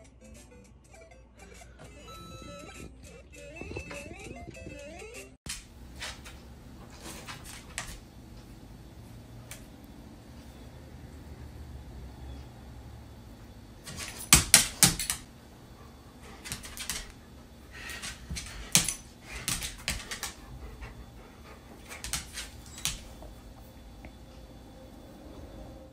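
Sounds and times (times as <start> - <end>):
dog claws clicking on laminate floor: 5.5 - 8.1, 13.8 - 15.3, 16.3 - 23.4.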